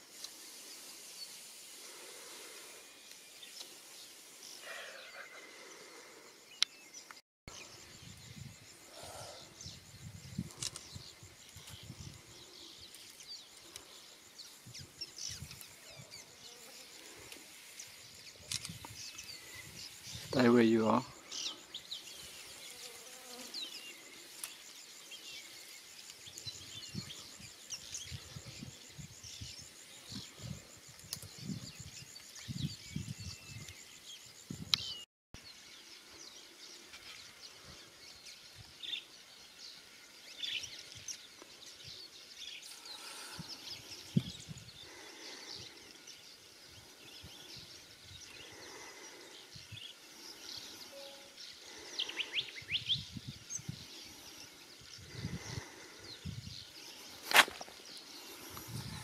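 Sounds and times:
high insect trill: 0:07.5 - 0:59.0.

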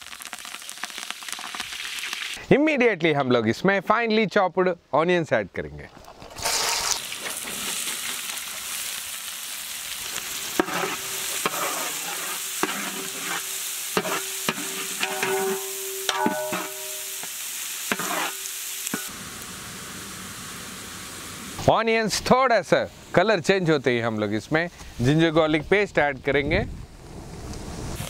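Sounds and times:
onions sizzling in hot oil: 0:00.0 - 0:02.4, 0:06.1 - 0:22.2, 0:27.6 - 0:28.0
metal ladle scraping a pot: 0:06.1 - 0:08.0, 0:10.6 - 0:19.1.

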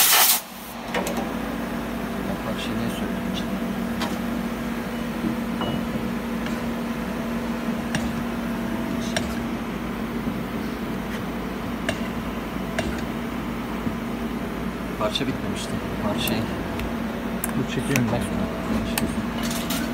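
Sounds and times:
machine low hum: 0:00.5 - 0:19.9
sharp metallic clicks: 0:16.2 - 0:18.2.

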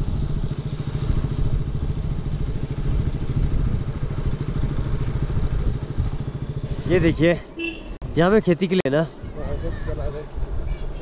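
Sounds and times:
motorcycle engine running: 0:00.0 - 0:07.9.

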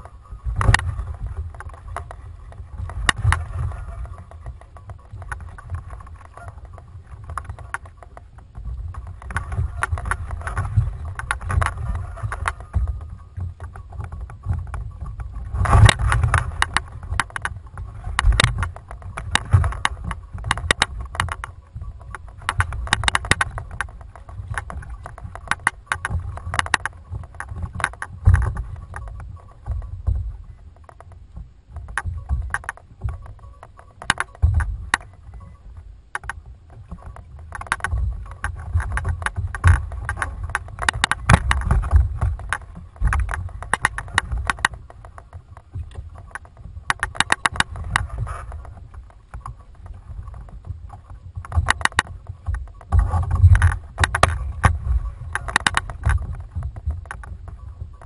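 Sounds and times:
gear knocks and clicks: 0:00.0 - 0:58.0
wind and water against hull: 0:00.0 - 0:58.0.

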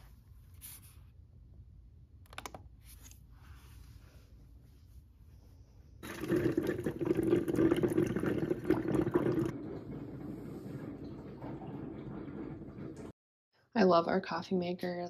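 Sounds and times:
coffee machine pouring water: 0:06.0 - 0:13.1.

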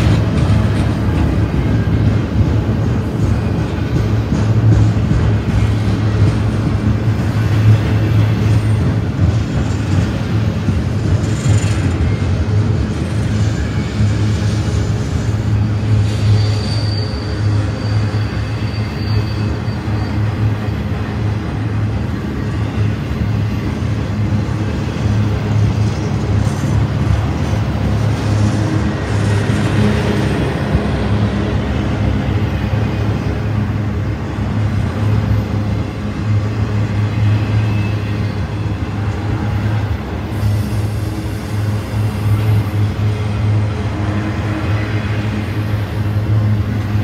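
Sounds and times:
train wheels rumbling on rail: 0:00.0 - 0:47.0
high wheel squeal: 0:07.2 - 0:24.0, 0:34.8 - 0:47.0.

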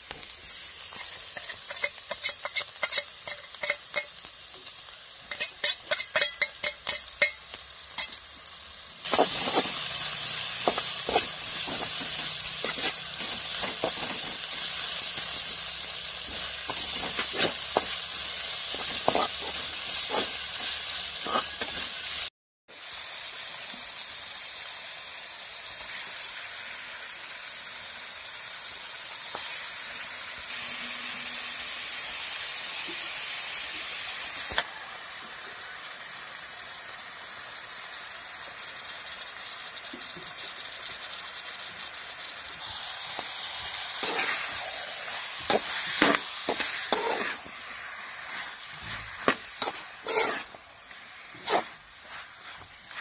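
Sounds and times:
chicken sizzling in hot oil: 0:00.0 - 0:53.0
metal spatula scraping a wok: 0:00.4 - 0:22.3, 0:43.1 - 0:53.0.

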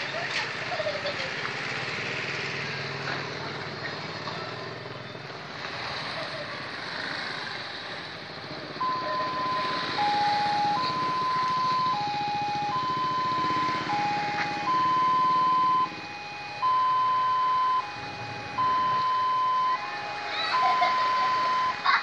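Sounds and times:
level crossing two-tone alarm: 0:08.8 - 0:22.0.

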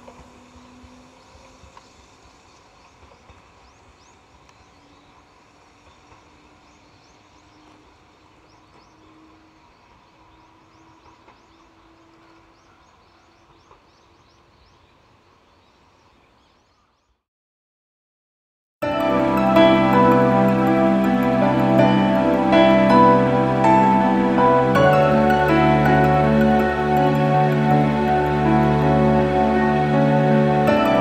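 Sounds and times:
small birds chirping: 0:01.2 - 0:17.2.

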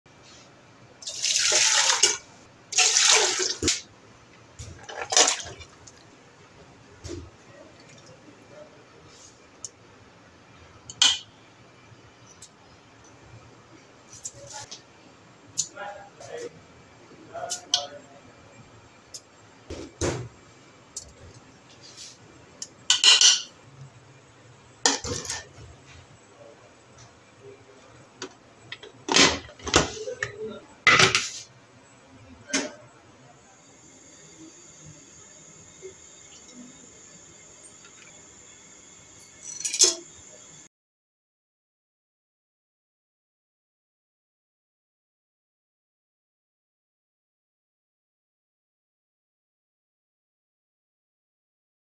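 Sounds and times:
water pouring into metal pot: 0:01.0 - 0:03.8.

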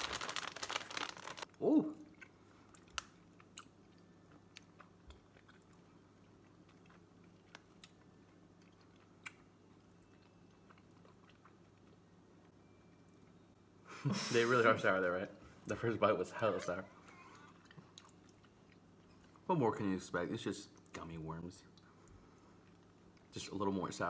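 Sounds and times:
chewing gummy candy: 0:00.0 - 0:12.5
faint low hum: 0:00.0 - 0:24.0.

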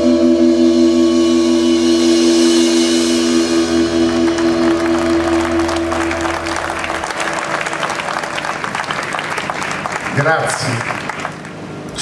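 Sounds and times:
cymbal wash: 0:00.0 - 0:06.6
band chord ringing out: 0:01.2 - 0:10.5
audience applause: 0:03.7 - 0:12.0.

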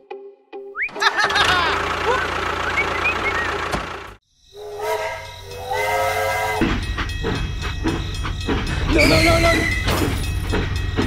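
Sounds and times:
train clattering and rumbling: 0:01.2 - 0:11.0
toy train whistle: 0:04.6 - 0:06.7, 0:08.8 - 0:09.9.

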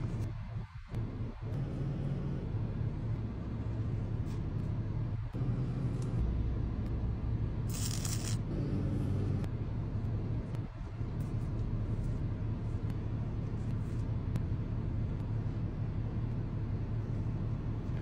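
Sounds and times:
car idling hum inside cabin: 0:01.0 - 0:07.6, 0:08.5 - 0:18.0.

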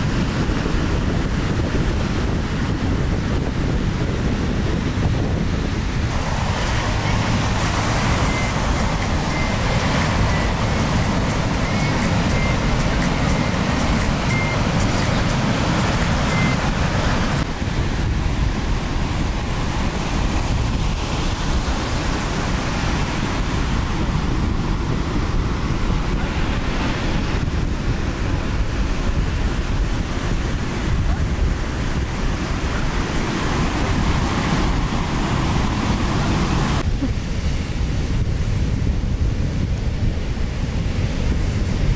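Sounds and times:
ocean surf breaking: 0:00.0 - 0:41.9
wind buffeting microphone: 0:00.0 - 0:41.9.

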